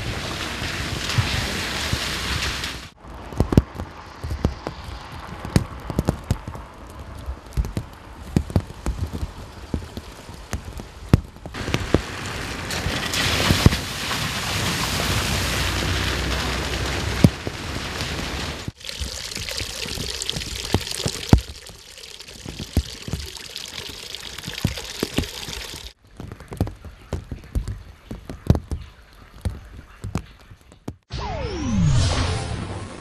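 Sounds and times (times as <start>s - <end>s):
slow-moving car rumble: 0.0s - 18.8s.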